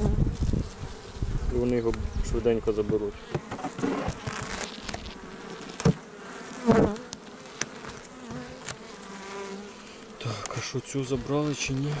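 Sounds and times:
honeybees buzzing: 0.0s - 12.0s
metal hive tool knocking on wood: 2.8s - 4.5s.

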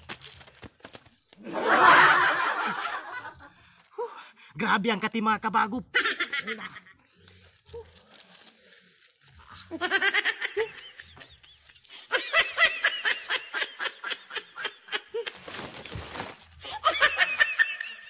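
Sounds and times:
man laughing hard: 5.9s - 6.9s, 9.7s - 15.4s, 16.6s - 18.0s.

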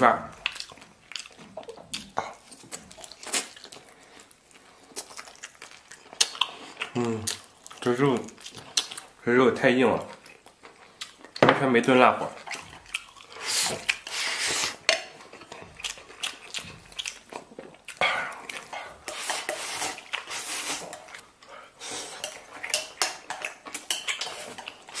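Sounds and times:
person chewing: 0.3s - 9.2s, 10.0s - 11.4s, 12.2s - 25.0s
chopsticks scraping a plate: 18.7s - 21.2s, 21.8s - 25.0s.

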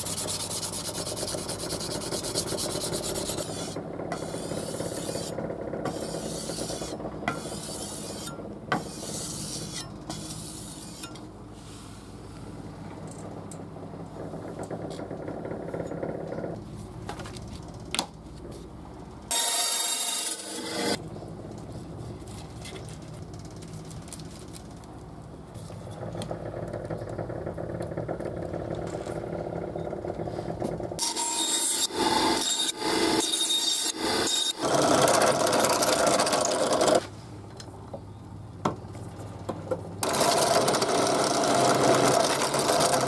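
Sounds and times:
file rasping on steel: 0.0s - 11.2s.

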